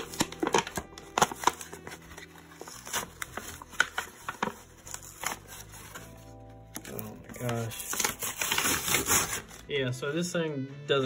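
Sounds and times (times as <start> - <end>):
cardboard box tearing: 7.8 - 9.6.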